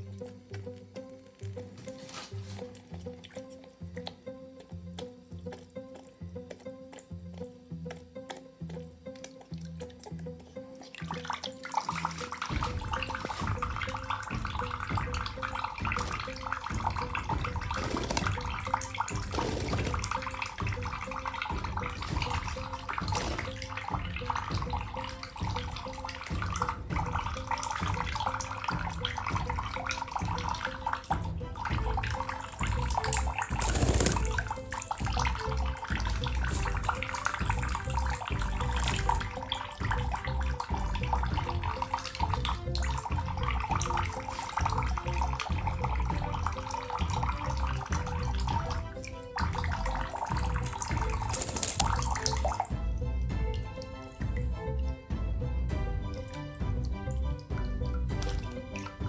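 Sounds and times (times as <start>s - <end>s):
tap water trickling: 0.0s - 59.0s
bird splashing and fluttering wings: 10.8s - 52.8s, 58.1s - 59.0s.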